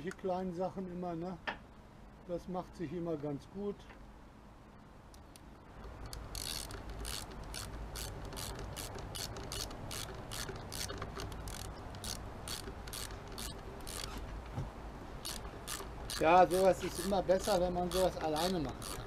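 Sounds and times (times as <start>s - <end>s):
hand ratchet clicking: 5.8s - 14.2s, 15.2s - 19.0s.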